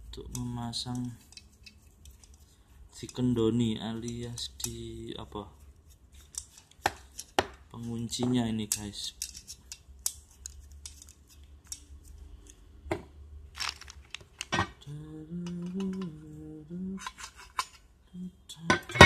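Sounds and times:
metal parts clinking: 0:00.4 - 0:02.4, 0:13.5 - 0:14.8, 0:15.4 - 0:16.2, 0:17.0 - 0:17.8
person humming: 0:14.8 - 0:17.1.

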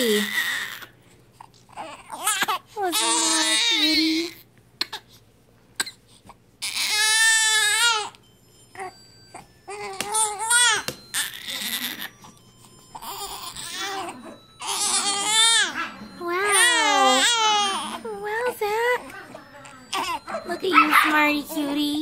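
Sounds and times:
baby crying: 0:00.0 - 0:01.0, 0:01.7 - 0:05.0, 0:06.6 - 0:08.2, 0:08.8 - 0:12.4, 0:13.0 - 0:20.3.

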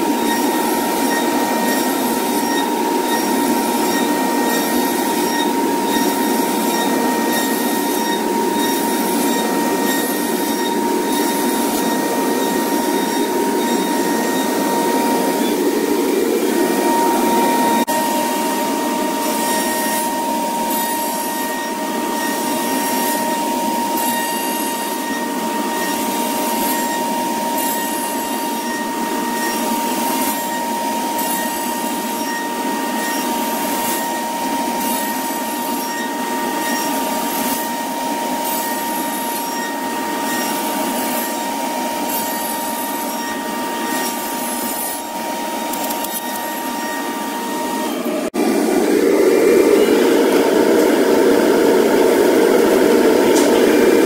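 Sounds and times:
deep steady machine noise: 0:00.0 - 0:31.3
router spindle whine cutting wood: 0:00.0 - 0:54.0.

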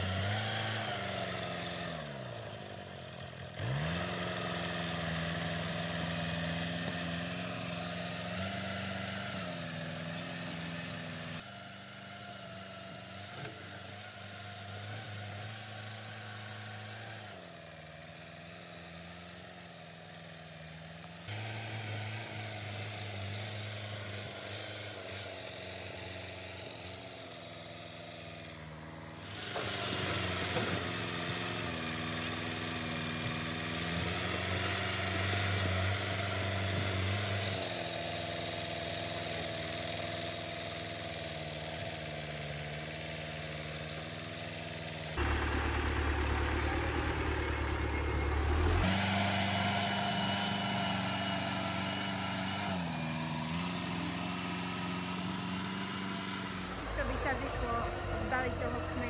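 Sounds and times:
diesel engine working under load: 0:00.0 - 0:59.0
blade pushing soil and stones: 0:21.3 - 0:59.0.

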